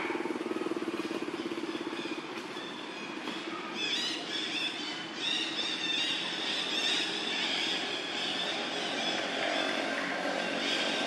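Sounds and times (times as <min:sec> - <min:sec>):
small engine idling: 0:00.0 - 0:03.4.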